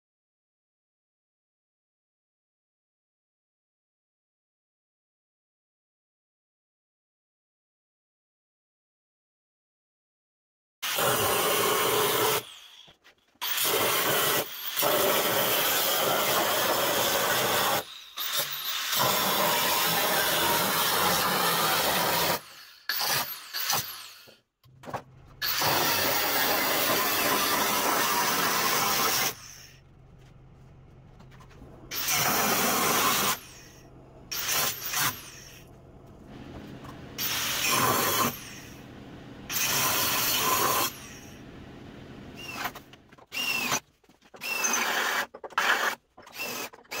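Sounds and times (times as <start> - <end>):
angle grinder stripping steel: 12.0 - 24.4, 25.3 - 29.8, 31.4 - 35.8, 37.2 - 38.8, 42.4 - 43.8, 44.4 - 47.0
low steady hum: 24.6 - 25.8, 29.3 - 39.9, 40.9 - 43.2.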